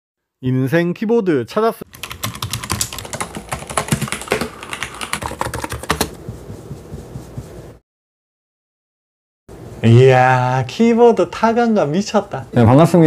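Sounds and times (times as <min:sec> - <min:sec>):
fast typing on mechanical keyboard: 0:01.9 - 0:06.2.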